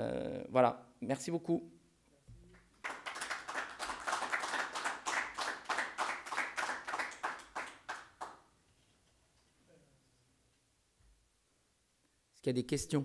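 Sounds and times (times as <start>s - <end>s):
audience applauding: 2.5s - 8.4s.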